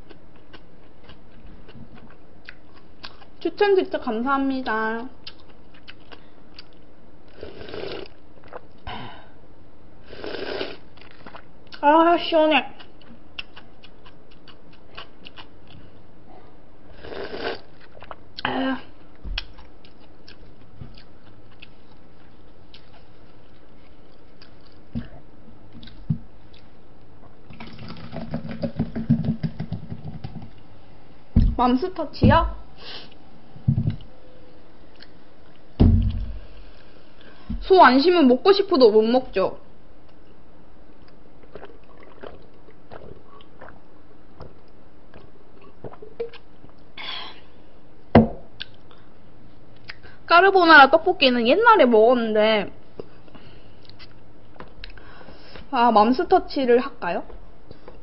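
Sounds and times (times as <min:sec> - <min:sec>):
soft knocks: 0:35.8 - 0:36.4
sipping and swallowing: 0:41.4 - 0:46.5
cup knocking on table: 0:48.2 - 0:48.4.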